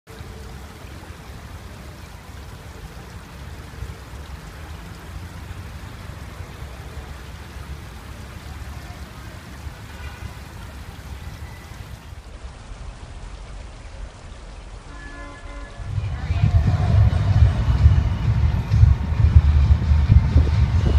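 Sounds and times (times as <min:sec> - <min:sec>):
fountain water splashing on stone: 0:00.1 - 0:20.9
low steady rumble: 0:12.0 - 0:20.9.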